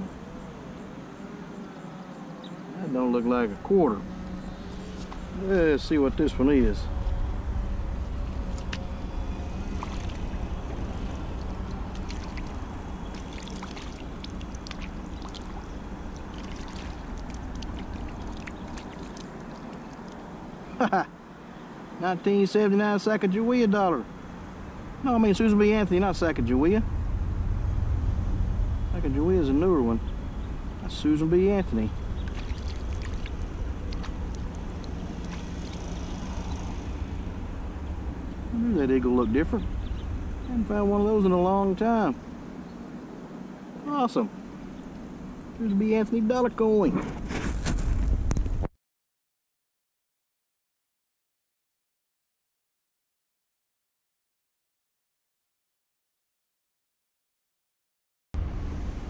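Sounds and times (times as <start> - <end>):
low rumble: 4.0 - 18.8, 25.1 - 42.4
water sloshing and dripping: 9.5 - 20.3, 32.1 - 36.8
small splashes: 9.7 - 20.3, 32.2 - 36.7.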